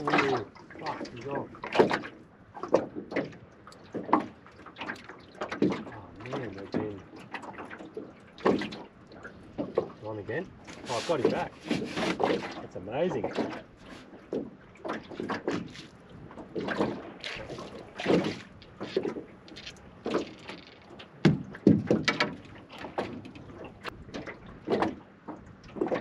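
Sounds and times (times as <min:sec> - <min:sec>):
knocking in aluminium boat: 0:21.1 - 0:25.0.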